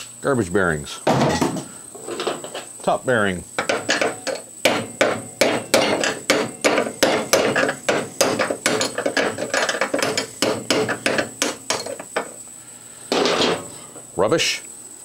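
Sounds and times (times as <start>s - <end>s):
hammer striking metal: 3.6s - 12.4s.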